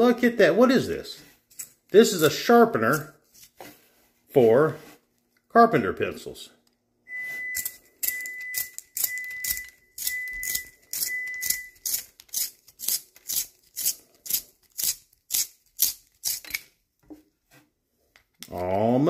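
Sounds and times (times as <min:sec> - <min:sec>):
thin high tone: 0:07.1 - 0:11.8
pencil sharpener blade scraping wood: 0:08.6 - 0:16.6.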